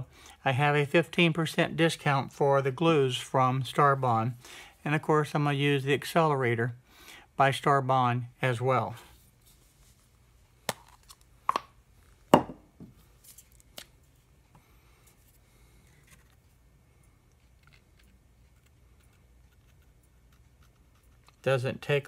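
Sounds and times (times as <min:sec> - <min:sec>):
bottles knocking on wooden bench: 0:12.3 - 0:12.9.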